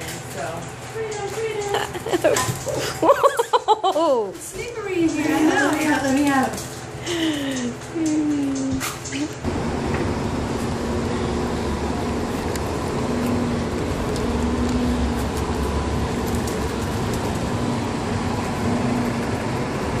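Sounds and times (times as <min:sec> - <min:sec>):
bus engine rumbling: 0:05.2 - 0:20.0
street traffic noise: 0:09.4 - 0:20.0.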